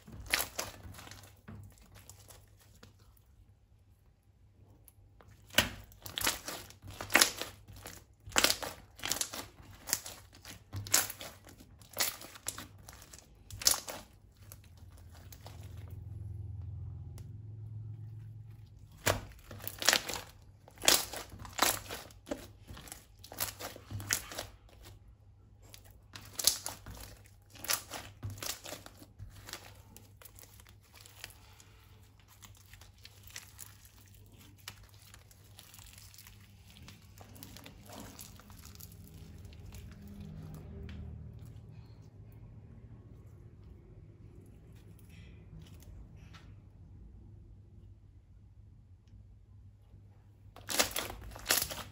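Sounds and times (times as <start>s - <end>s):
slime crinkling and crackling: 0.0s - 42.2s, 50.4s - 51.9s
low rumble: 14.7s - 19.8s.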